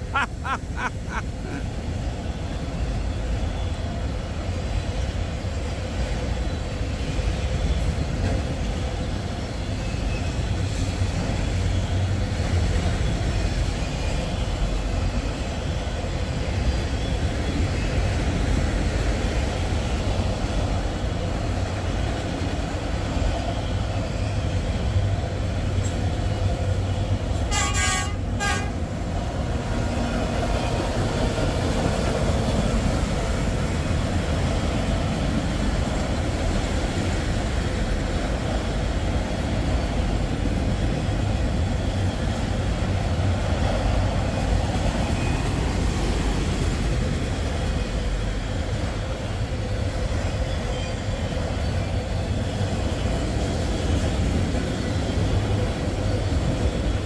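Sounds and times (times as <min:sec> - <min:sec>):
train passing rumble: 0:00.0 - 0:57.0
train horn toot: 0:27.4 - 0:28.8.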